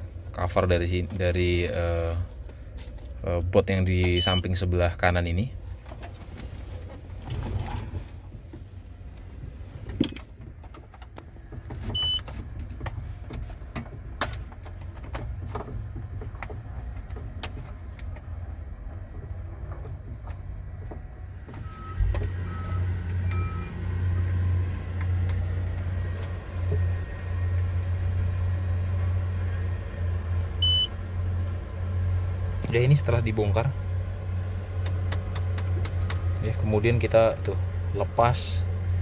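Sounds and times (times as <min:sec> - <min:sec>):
diesel engine rumbling: 0:00.0 - 0:39.0
short beeps: 0:04.2 - 0:04.5, 0:12.0 - 0:12.2, 0:30.6 - 0:30.9.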